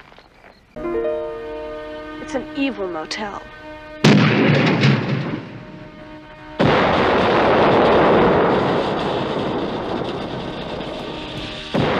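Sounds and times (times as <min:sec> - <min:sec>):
crash: 0:04.0 - 0:11.9
neon sign exploding: 0:04.0 - 0:11.9.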